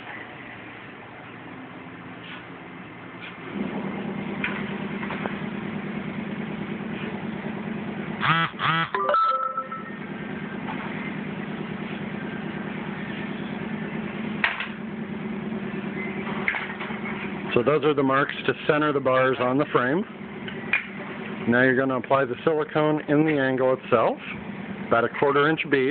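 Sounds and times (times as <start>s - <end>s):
low machine hum: 0.0s - 25.9s
brief pitch-bending sounds: 8.9s - 10.5s.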